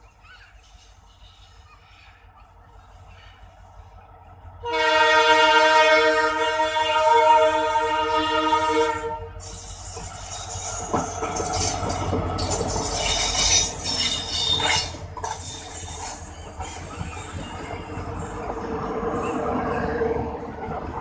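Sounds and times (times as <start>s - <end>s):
diesel locomotive engine: 0.0s - 21.0s
locomotive horn: 4.6s - 9.4s
train wheels clicking over rail joints: 9.4s - 21.0s.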